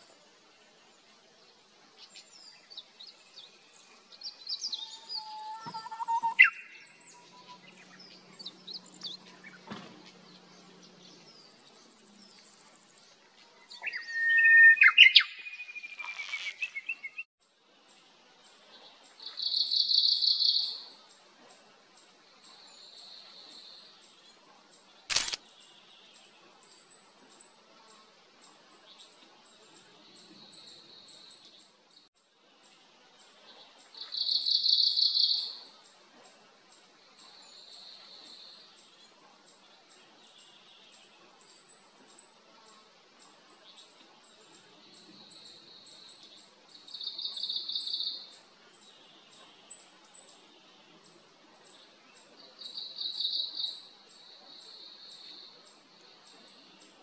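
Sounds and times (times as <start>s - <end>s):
bird singing whistled phrase: 4.7s - 7.7s, 13.8s - 17.2s
sharp click: 25.1s - 25.4s.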